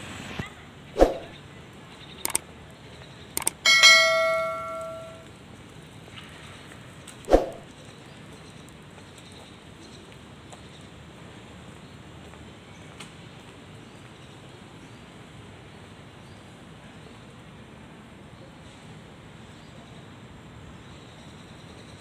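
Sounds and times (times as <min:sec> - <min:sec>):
mouse clicks: 0:03.4 - 0:03.6
notification bell ding: 0:03.4 - 0:05.2.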